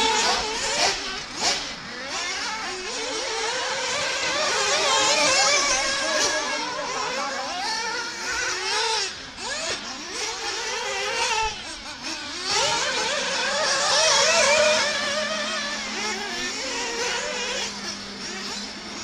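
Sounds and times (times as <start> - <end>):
small high-revving motors: 0.0 - 19.0.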